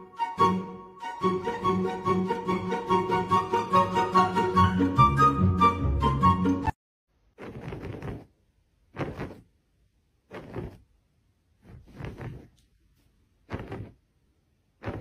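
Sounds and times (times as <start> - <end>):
fingers scratching a rug: 7.3 - 9.6, 10.3 - 10.9, 11.6 - 12.7, 13.4 - 14.0, 14.8 - 15.0.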